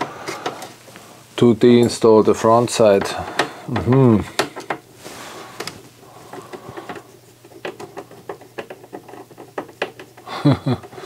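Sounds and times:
screwdriver clicking and scratching: 0:05.6 - 0:10.3.

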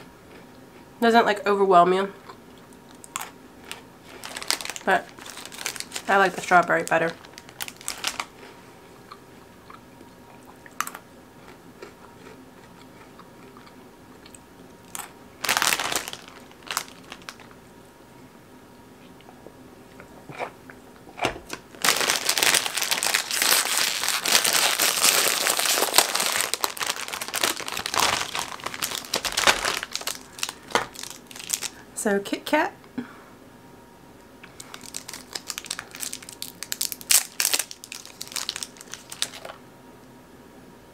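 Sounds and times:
plastic wrapper crinkling: 0:03.1 - 0:08.5, 0:14.9 - 0:17.6, 0:21.5 - 0:31.8, 0:34.4 - 0:39.6
snack stick crunching: 0:09.0 - 0:17.4.

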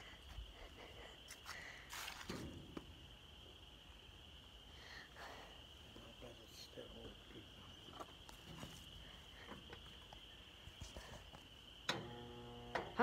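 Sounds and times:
faint high whine: 0:00.0 - 0:13.0
battery charger buzzing: 0:11.9 - 0:13.0.

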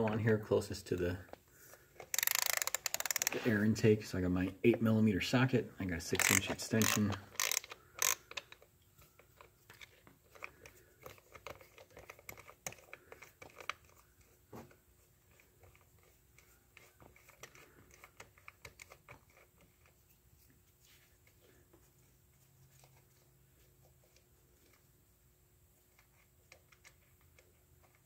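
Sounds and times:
socket wrench clicking and rattling: 0:02.0 - 0:03.4, 0:06.2 - 0:14.0.

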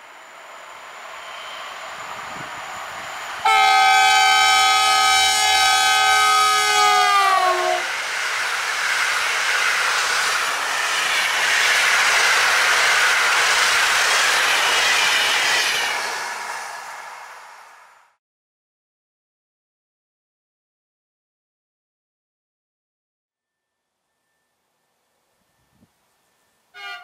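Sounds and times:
train coaches rumbling by: 0:00.0 - 0:18.1
locomotive horn blast: 0:03.4 - 0:07.9, 0:26.7 - 0:27.0.

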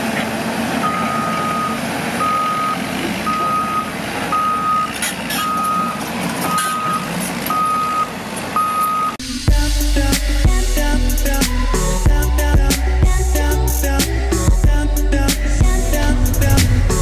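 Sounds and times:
diesel engine running: 0:00.0 - 0:17.0
excavator travel alarm beeping: 0:00.8 - 0:09.2
music: 0:09.2 - 0:17.0.

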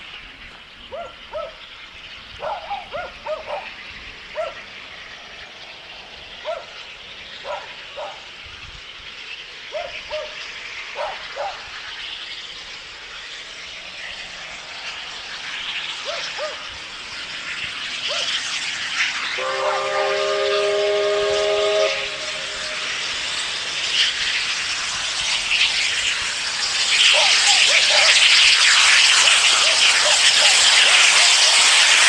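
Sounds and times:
steam locomotive approaching: 0:00.0 - 0:32.0
dog barking: 0:00.9 - 0:01.6, 0:02.4 - 0:03.7, 0:04.4 - 0:04.6, 0:06.4 - 0:06.7, 0:07.4 - 0:08.2, 0:09.7 - 0:10.3, 0:11.0 - 0:11.6, 0:16.0 - 0:16.6, 0:27.1 - 0:28.2.

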